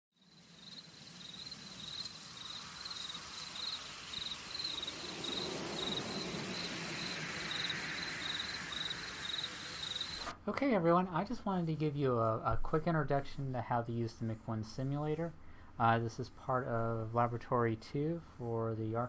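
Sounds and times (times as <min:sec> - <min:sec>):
cricket chirping: 0:00.2 - 0:10.3
faint background hiss: 0:00.2 - 0:19.0.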